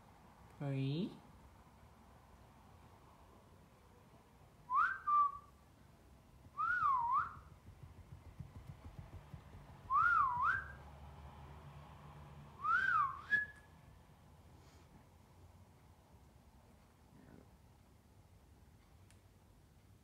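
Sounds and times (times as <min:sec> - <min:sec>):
person whistling: 0:04.7 - 0:05.5, 0:06.6 - 0:07.5, 0:09.9 - 0:10.8, 0:12.6 - 0:13.6.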